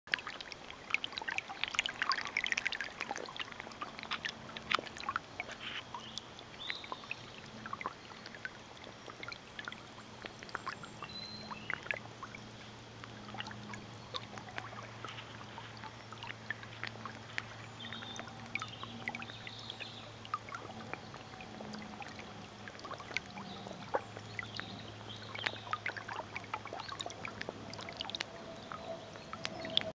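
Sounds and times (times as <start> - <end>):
low steady hum: 0.1 - 29.9
water trickling and splashing: 0.1 - 30.0
small clicks: 4.0 - 6.0.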